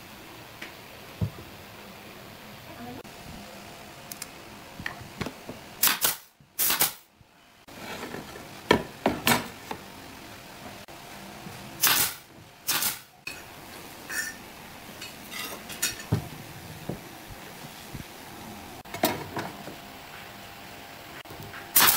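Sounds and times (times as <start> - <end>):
pneumatic nailer firing: 5.8 - 7.1, 11.8 - 13.1.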